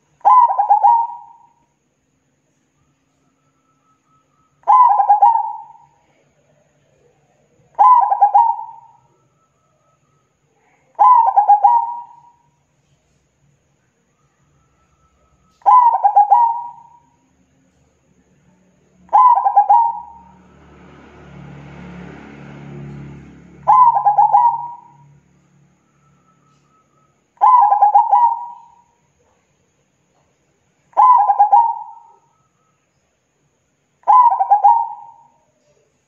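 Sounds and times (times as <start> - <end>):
dove cooing: 0.2 - 1.6, 4.6 - 6.0, 7.8 - 9.0, 11.0 - 12.4, 15.6 - 17.0, 19.1 - 20.4, 23.6 - 25.0, 26.4 - 29.0, 30.9 - 32.4, 34.0 - 35.8.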